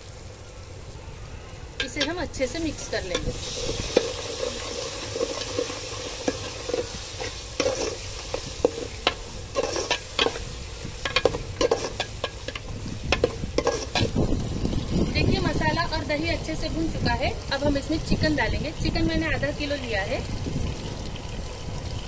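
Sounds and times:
food sizzling: 0.0 - 22.0
ladle scraping a metal pot: 2.8 - 14.2.

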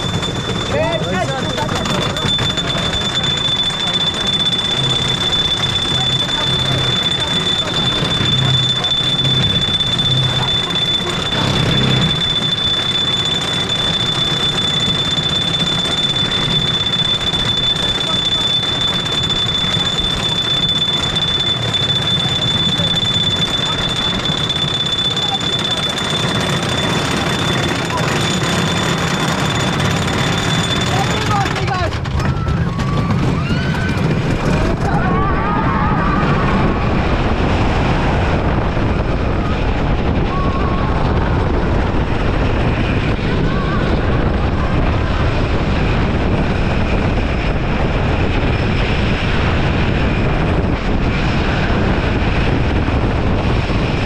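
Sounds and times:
wavering high tone: 0.0 - 34.8
high-pitched whine: 0.0 - 54.0
roller coaster train rumbling: 0.0 - 54.0.

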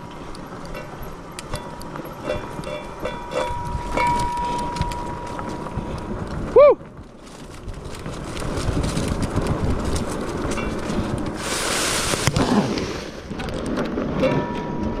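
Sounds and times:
bike tyres and frame rattling: 0.0 - 15.0
wind on microphone: 0.0 - 15.0
short hiss: 11.4 - 12.3.

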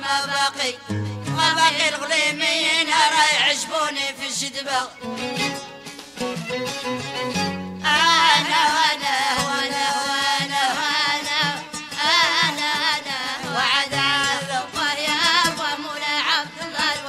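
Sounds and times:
person singing ornamented lines: 0.0 - 5.3, 7.8 - 17.0
violin: 4.9 - 17.0.

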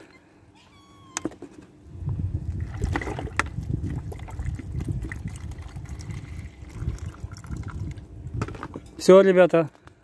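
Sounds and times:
water glugging from plastic bottle: 2.4 - 8.8.

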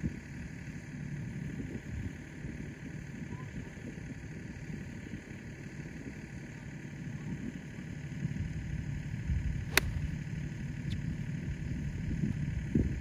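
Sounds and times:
steady low rumble: 0.0 - 13.0
golf club striking ball: 9.7 - 10.2.

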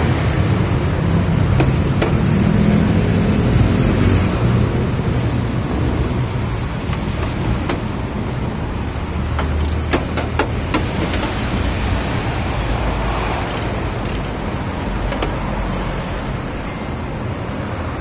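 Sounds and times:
ratchet wrench clicking: 9.4 - 10.0, 13.4 - 14.4
metal parts being handled: 9.4 - 10.5.

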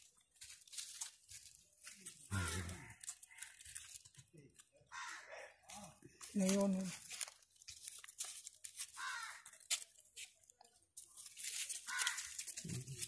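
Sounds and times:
dry crinkling rustles: 0.0 - 4.8, 5.7 - 13.0
low voice: 2.3 - 2.9.

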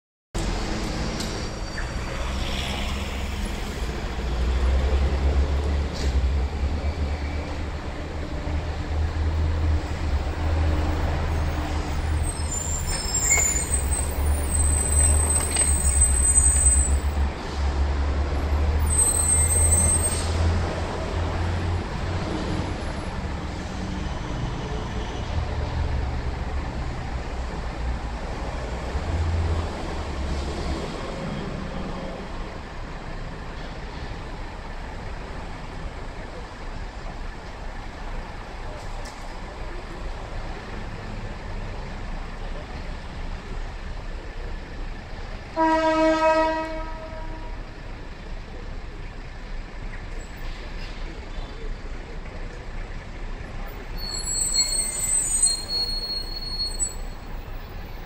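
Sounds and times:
buses and cars passing: 0.4 - 58.0
bus air brakes hissing: 18.8 - 20.6
high-pitched squeals: 53.9 - 57.4.

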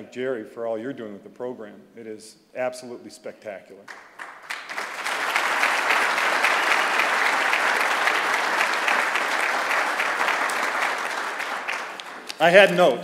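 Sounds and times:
audience applauding: 3.9 - 12.8.

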